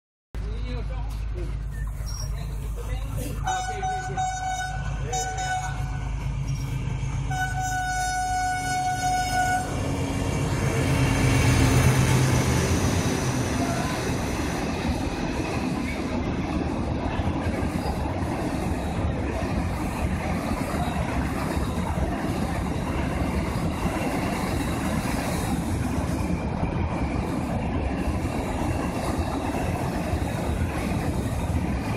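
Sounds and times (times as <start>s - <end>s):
diesel locomotive engine rumble: 0.4s - 31.9s
two-note locomotive horn: 3.5s - 6.0s, 7.3s - 9.8s
wagon wheels rattling on rail: 13.6s - 31.9s.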